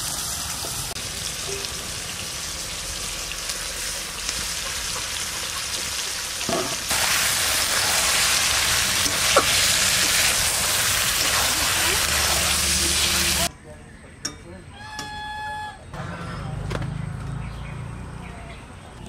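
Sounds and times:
meat sizzling in hot oil: 0.0 - 13.5
metal spatula turning meat: 6.5 - 13.5.

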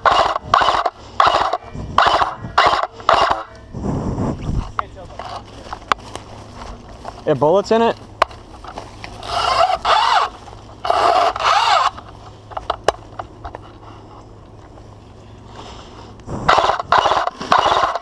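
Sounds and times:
bursts of noise: 0.0 - 4.5, 16.2 - 18.0
footsteps through undergrowth: 4.5 - 16.2.

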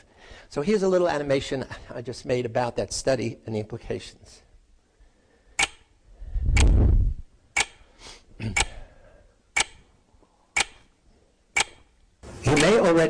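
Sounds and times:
clock ticking: 5.6 - 5.9, 7.5 - 8.8, 9.5 - 9.9, 10.6 - 10.9, 11.5 - 13.0.

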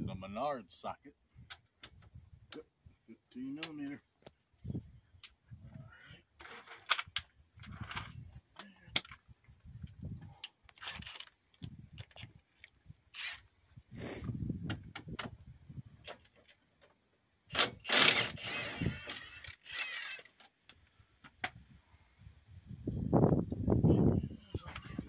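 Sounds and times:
metal tools clinking and scraping: 6.4 - 8.4.

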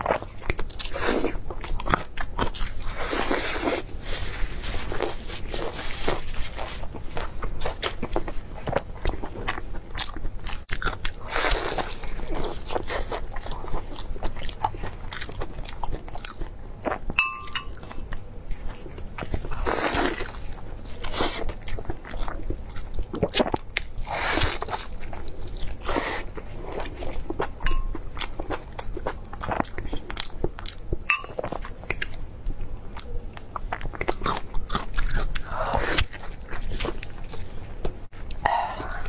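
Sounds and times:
crunchy chewing: 32.9 - 39.0.

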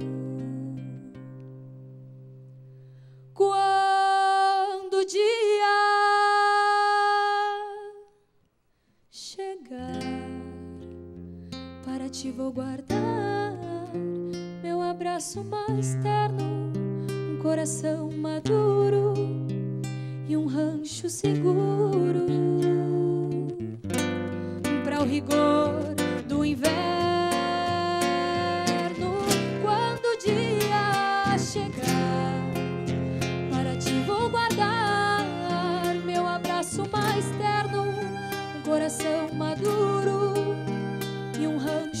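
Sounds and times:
woman singing folk song: 0.0 - 1.8, 3.2 - 8.1, 9.1 - 42.0
nylon-string acoustic guitar: 0.0 - 4.1, 9.8 - 42.0
violin: 24.2 - 42.0.

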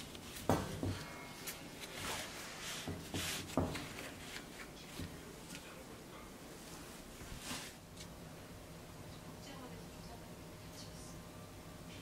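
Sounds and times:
cloth rustling: 0.0 - 5.8, 6.5 - 7.8.

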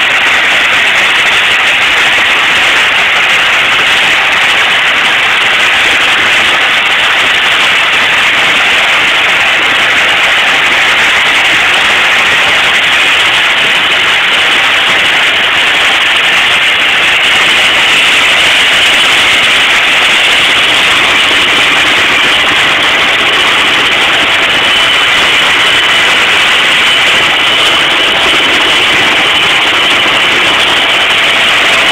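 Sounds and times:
forage harvester working: 0.0 - 31.9
second tractor: 0.0 - 31.9
diesel tractor engine under load: 11.0 - 31.9.

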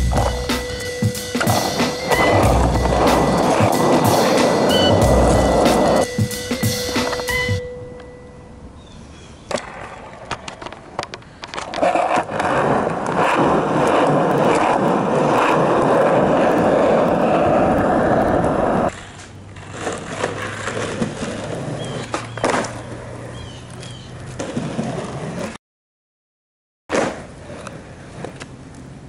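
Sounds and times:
skateboard wheels rolling on asphalt: 0.0 - 7.6, 9.2 - 25.6, 26.9 - 29.0
skateboard clicks and knocks: 9.5 - 25.6, 26.9 - 29.0.

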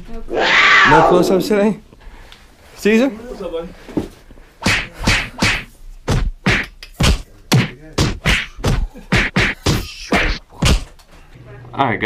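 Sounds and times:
hand slaps and claps: 4.6 - 11.0.

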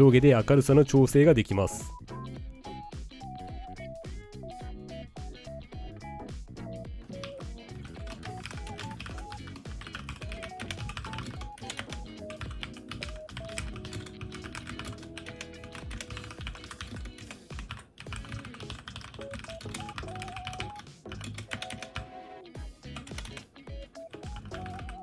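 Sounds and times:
background music: 0.0 - 25.0
fast mechanical keyboard typing: 7.2 - 22.1, 23.0 - 23.4, 24.2 - 25.0.

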